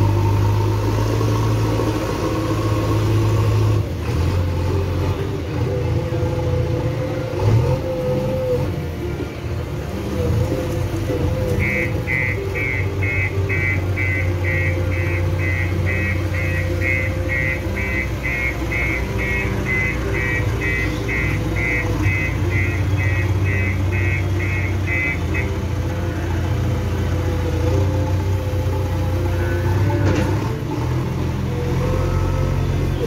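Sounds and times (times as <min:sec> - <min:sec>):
diesel engine running: 0:00.0 - 0:33.0
reversing alarm beeping: 0:10.3 - 0:27.7.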